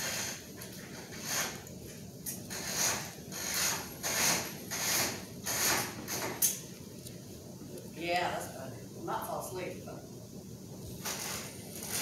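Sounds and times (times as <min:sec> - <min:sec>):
pencil scratching on paper: 0:02.5 - 0:06.3.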